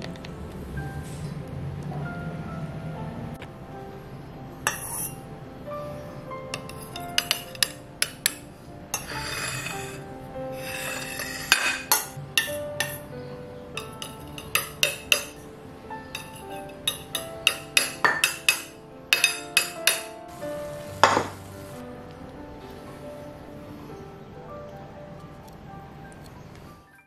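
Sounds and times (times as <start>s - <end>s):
music: 0.0s - 27.0s
metal spoon clinking on dishes: 4.7s - 5.2s, 6.5s - 10.0s, 10.6s - 13.0s, 13.8s - 15.4s, 16.1s - 20.2s
plate scraping on stone counter: 4.7s - 5.2s, 6.6s - 8.4s, 9.0s - 10.0s, 10.6s - 13.0s, 13.8s - 15.4s, 16.1s - 20.1s, 21.0s - 21.4s.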